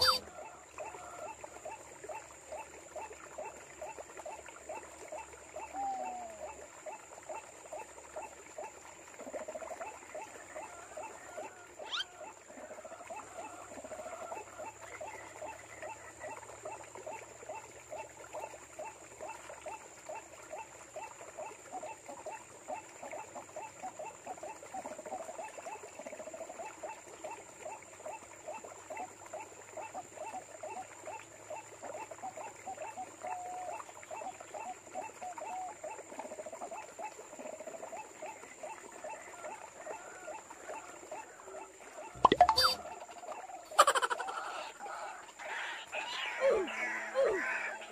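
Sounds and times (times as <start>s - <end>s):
waterhen calling notes: 0.0s - 3.6s, 10.1s - 16.8s, 38.2s - 47.9s.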